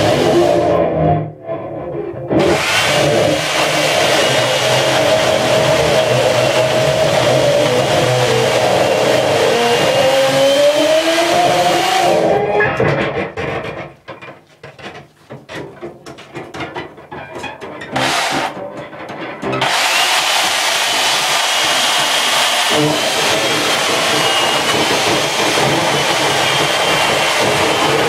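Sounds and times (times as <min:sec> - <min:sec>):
chainsaw cutting wood: 0:02.4 - 0:12.4, 0:17.9 - 0:18.6, 0:19.5 - 0:28.0.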